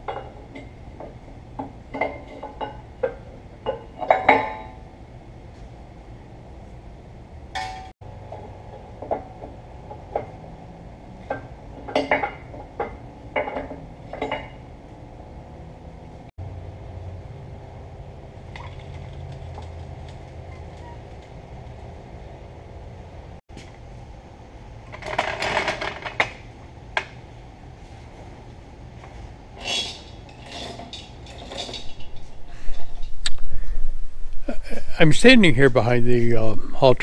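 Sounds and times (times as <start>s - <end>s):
steady low hum: 26.4s - 37.0s.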